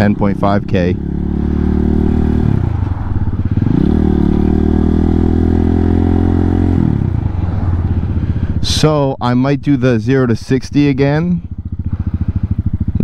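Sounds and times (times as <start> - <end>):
single-cylinder engine running: 0.0 - 13.0.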